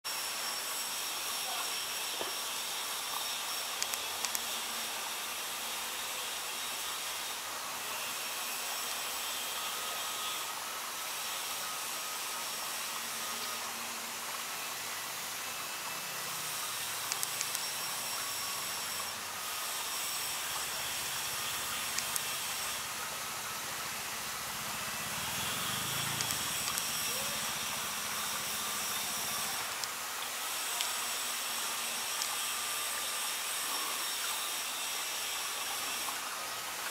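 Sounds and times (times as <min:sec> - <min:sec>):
outdoor ambient hiss: 0:00.1 - 0:36.9
soft clicks: 0:03.8 - 0:04.4.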